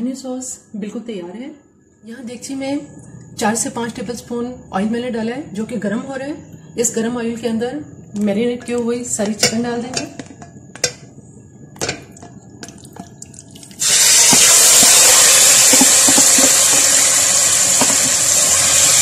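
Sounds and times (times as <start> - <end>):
chicken sizzling in hot oil: 13.8 - 19.0.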